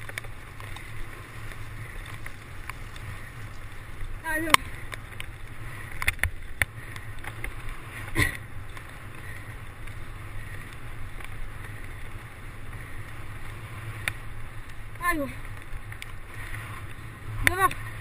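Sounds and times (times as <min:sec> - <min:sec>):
bike rattles and knocks: 0:00.0 - 0:13.3
bike tyres rumbling on grass: 0:00.0 - 0:18.0.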